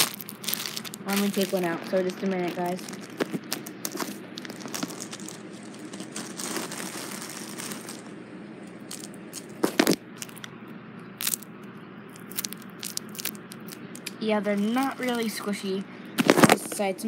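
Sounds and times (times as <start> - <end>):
plastic bag crinkling: 0.0 - 10.5, 11.2 - 11.4, 12.2 - 15.2.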